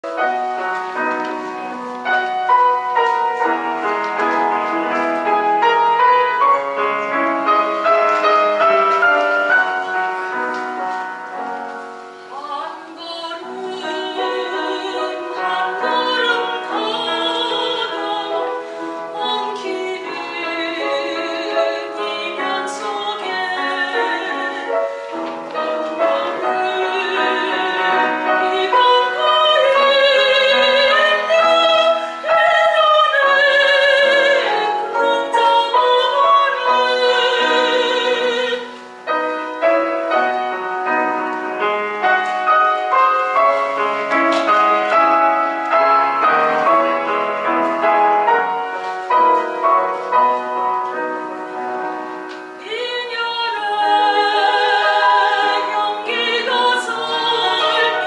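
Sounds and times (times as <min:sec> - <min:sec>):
grand piano playing: 0:00.0 - 0:58.0
soprano singing with vibrato: 0:12.3 - 0:41.0, 0:52.5 - 0:58.0.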